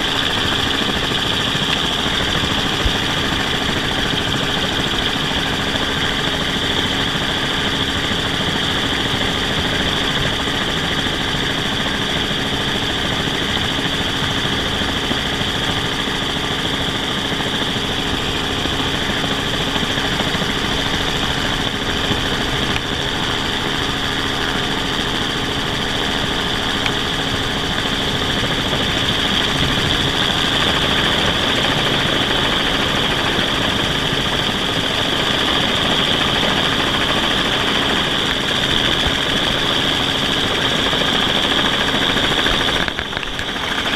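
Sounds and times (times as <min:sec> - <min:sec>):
helicopter rotor and engine: 0:00.0 - 0:43.9.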